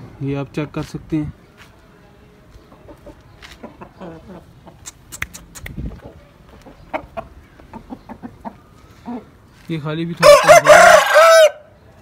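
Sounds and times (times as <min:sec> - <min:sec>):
roosters clucking: 0:02.5 - 0:12.0
sharp clicks: 0:04.8 - 0:05.8.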